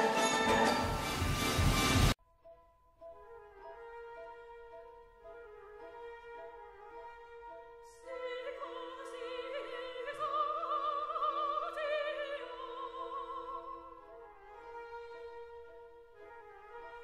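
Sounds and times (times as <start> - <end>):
operatic singing: 0.0 - 1.7, 7.9 - 14.3.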